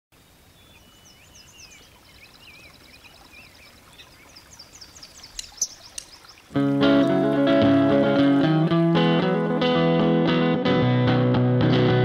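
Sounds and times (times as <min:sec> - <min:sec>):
songbirds singing: 0:00.2 - 0:08.6
soft outdoor hush: 0:00.2 - 0:08.8
sharp click: 0:05.3 - 0:06.2.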